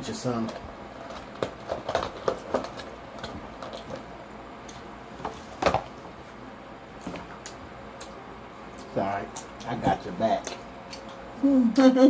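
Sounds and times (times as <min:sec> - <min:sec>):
wet chewing: 0:10.4 - 0:11.2.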